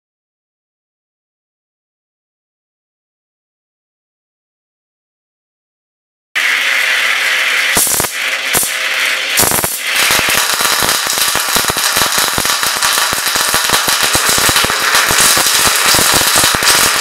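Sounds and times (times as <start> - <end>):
crackle of electric sparks: 6.4 - 17.0
hiss: 7.7 - 8.8, 9.4 - 17.0.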